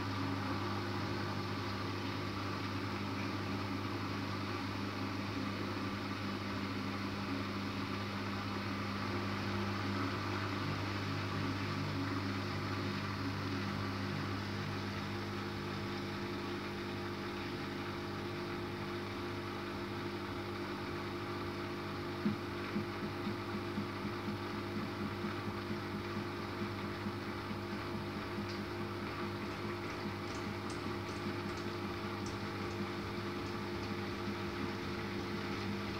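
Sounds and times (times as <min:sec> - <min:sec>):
washing machine drum spinning: 0:22.2 - 0:35.9.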